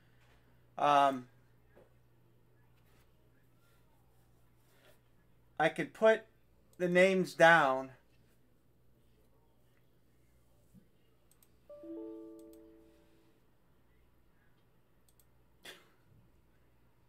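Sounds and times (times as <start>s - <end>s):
electronic alert chime: 11.7s - 13.3s.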